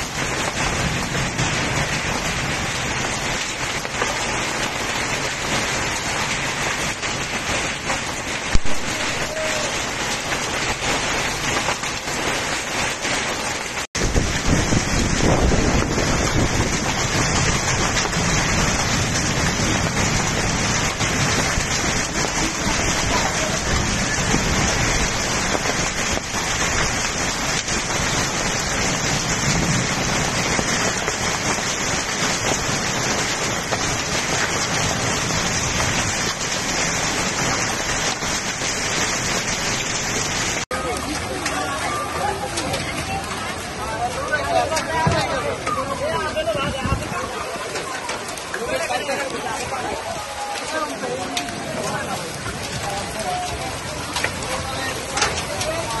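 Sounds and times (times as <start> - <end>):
heavy rain and hail: 0.0 - 56.0.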